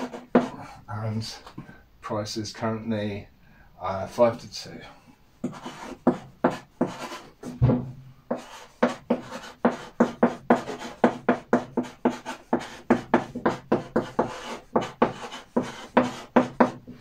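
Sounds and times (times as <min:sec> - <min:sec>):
chalk scratching on blackboard: 0:00.0 - 0:00.6, 0:05.4 - 0:07.6, 0:08.3 - 0:16.9
dull knock: 0:07.5 - 0:08.0.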